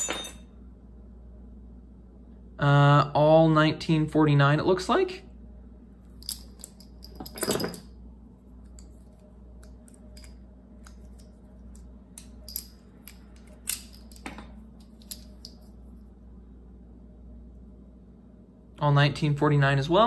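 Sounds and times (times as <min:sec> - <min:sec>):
metal cartridges clinking: 0:06.1 - 0:07.9, 0:09.8 - 0:10.4, 0:12.2 - 0:15.7.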